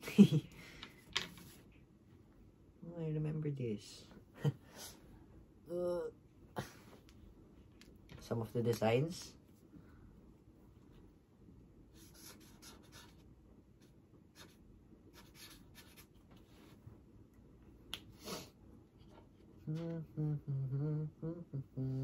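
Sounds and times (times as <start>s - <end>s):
man humming: 19.6s - 22.0s.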